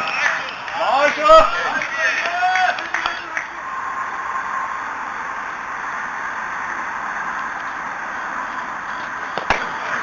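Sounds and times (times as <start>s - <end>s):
outdoor ambient hiss: 0.0s - 10.0s
faint steady tone: 3.5s - 10.0s.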